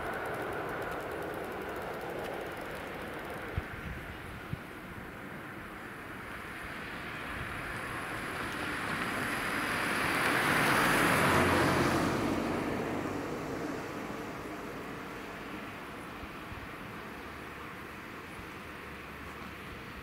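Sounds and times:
car passing by: 0:05.9 - 0:16.4.

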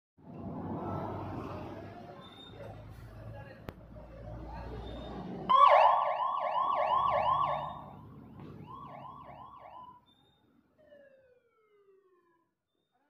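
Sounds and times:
fire engine siren yelping: 0:05.5 - 0:10.2, 0:10.8 - 0:12.5.

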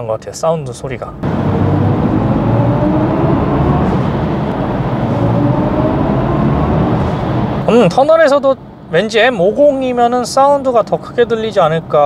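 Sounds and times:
road and tyre noise: 0:01.0 - 0:12.0
synthesized electric car driving tone: 0:01.2 - 0:08.0.

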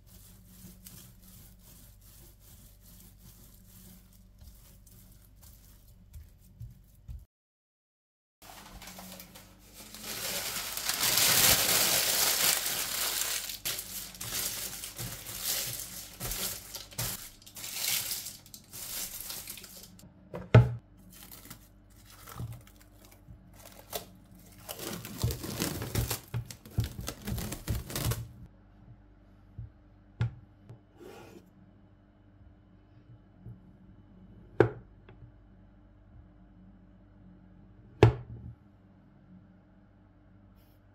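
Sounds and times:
paper crinkling and tearing: 0:08.4 - 0:20.0, 0:21.1 - 0:28.4.

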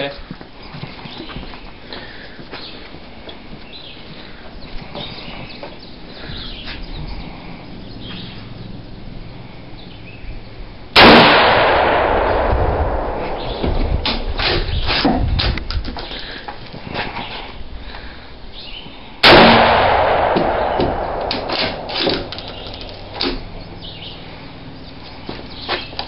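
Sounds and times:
loud rifle shot: 0:11.0 - 0:14.7, 0:19.2 - 0:23.5
sharp clicks and knocks: 0:20.4 - 0:23.4.

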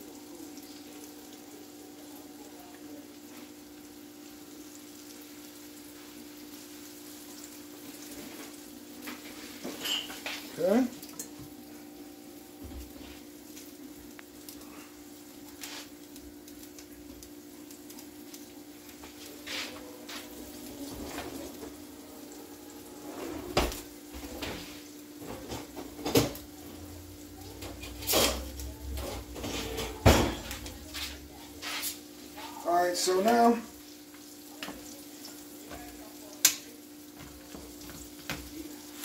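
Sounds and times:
metal cutlery clattering: 0:27.7 - 0:30.6.

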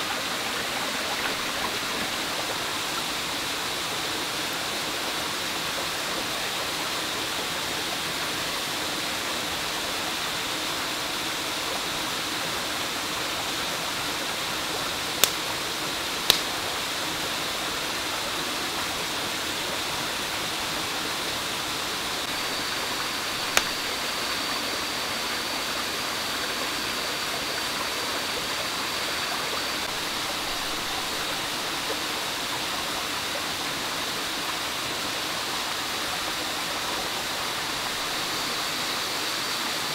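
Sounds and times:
campfire pops: 0:15.2 - 0:15.6, 0:16.2 - 0:16.7, 0:22.3 - 0:24.2.

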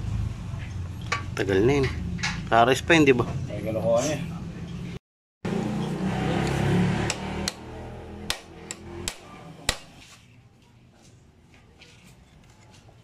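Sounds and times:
hammer tapping metal rod: 0:08.3 - 0:10.0.

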